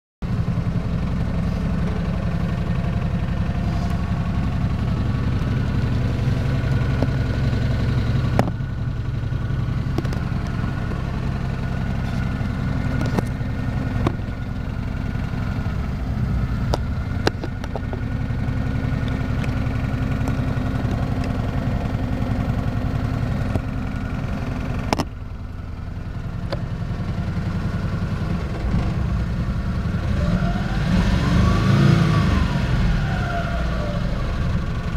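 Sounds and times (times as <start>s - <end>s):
truck engine idling: 0.2s - 30.8s, 31.5s - 34.9s
sharp clicks and knocks: 8.3s - 8.6s, 9.9s - 11.0s, 12.9s - 13.4s, 14.0s - 14.4s, 16.7s - 18.1s, 24.8s - 25.2s.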